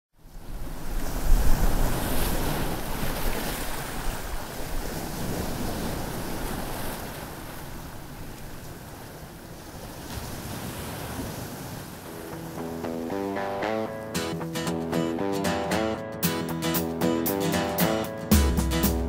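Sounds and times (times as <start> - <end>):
wind: 0.1 - 14.7
sea surf rushing: 0.4 - 19.0.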